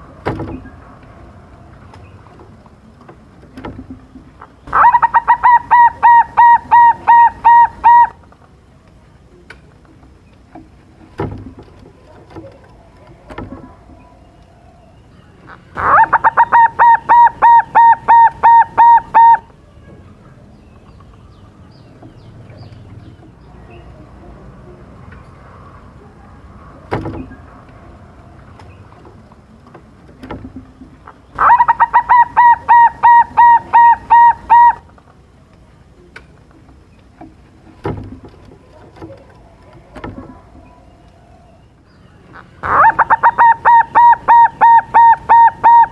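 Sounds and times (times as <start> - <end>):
dove cooing: 4.7 - 8.2, 15.5 - 19.5, 31.1 - 34.9, 42.4 - 45.9.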